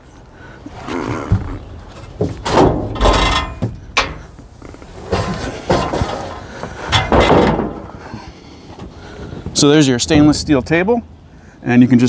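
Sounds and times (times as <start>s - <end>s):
metal table clanking and rattling: 2.0s - 4.3s, 5.0s - 7.9s.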